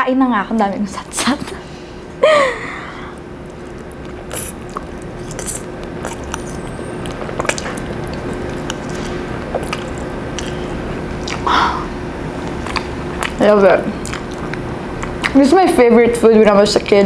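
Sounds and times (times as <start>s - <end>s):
faint steady hum: 0.0s - 17.0s
slurping and chewing noodles: 3.1s - 15.4s
wet mouth clicks and smacks: 3.2s - 11.5s, 12.4s - 13.4s, 14.0s - 15.4s.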